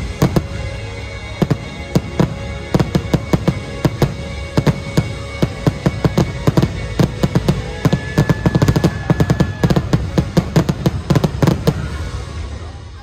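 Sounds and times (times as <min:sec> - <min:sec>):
fireworks bursting: 0:00.0 - 0:13.0
music: 0:00.0 - 0:13.0.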